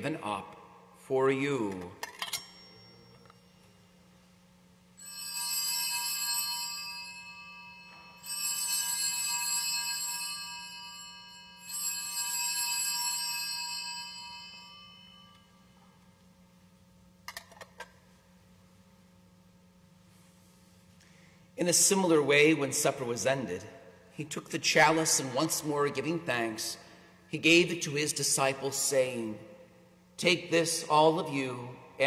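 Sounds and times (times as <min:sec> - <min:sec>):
altar bells ringing: 0:02.3 - 0:03.9, 0:05.0 - 0:15.8.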